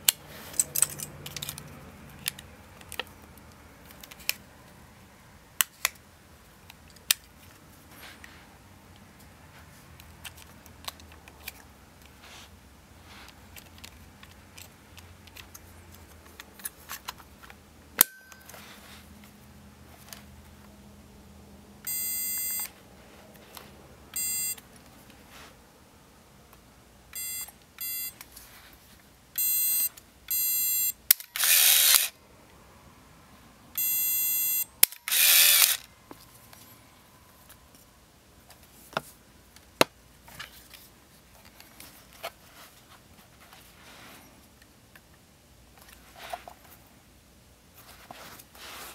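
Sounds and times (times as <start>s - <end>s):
short electronic beeps: 21.9s - 22.7s, 24.2s - 24.6s, 27.2s - 28.2s, 29.4s - 31.0s, 33.8s - 34.7s
camera click: 31.1s - 32.1s, 34.8s - 35.8s
camera motor whirring: 31.2s - 32.1s, 33.8s - 35.9s.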